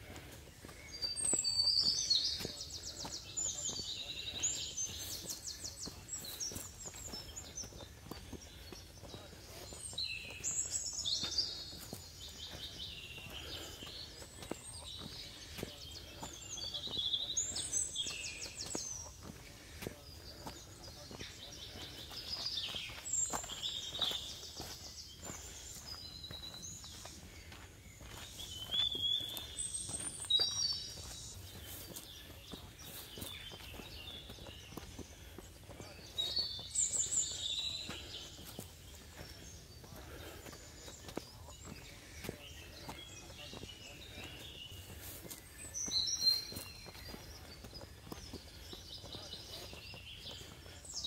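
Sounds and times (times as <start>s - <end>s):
footsteps on rock: 0.0s - 51.0s
songbird singing: 0.0s - 51.0s.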